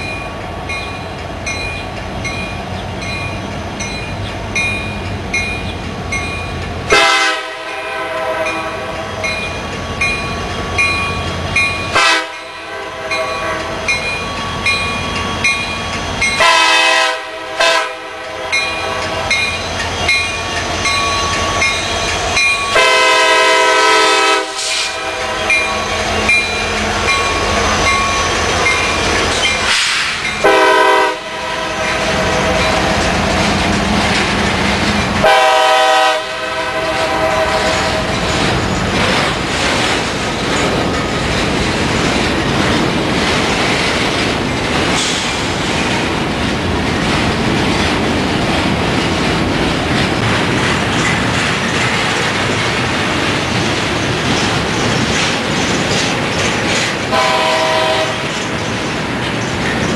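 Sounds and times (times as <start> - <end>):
train rumble and wheel clatter: 0.0 - 59.9
train horn blasts: 6.9 - 9.1, 11.9 - 13.8, 16.4 - 19.0, 22.7 - 25.9, 30.4 - 33.0, 35.2 - 38.2, 57.1 - 58.4.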